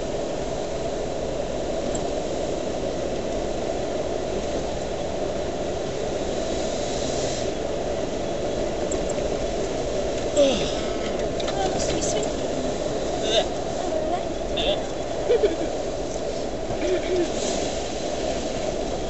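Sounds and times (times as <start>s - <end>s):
car engine and road noise: 0.0s - 19.0s
high hiss: 4.3s - 19.0s.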